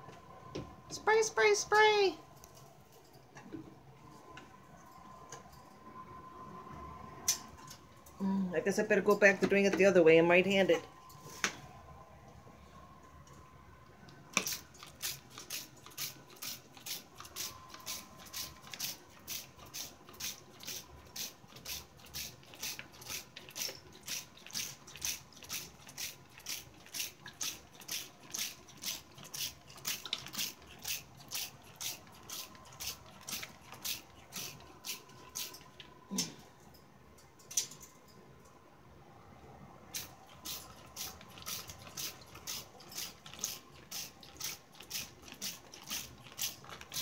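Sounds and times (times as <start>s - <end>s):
spray bottle squirting water: 14.3s - 35.6s, 40.0s - 47.0s.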